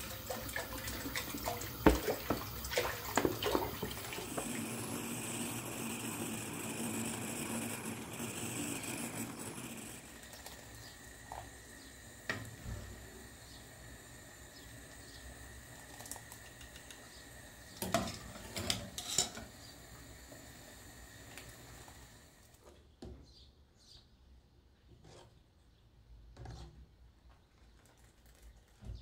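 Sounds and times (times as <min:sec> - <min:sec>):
metal spoon scraping a pot: 0:18.1 - 0:19.5.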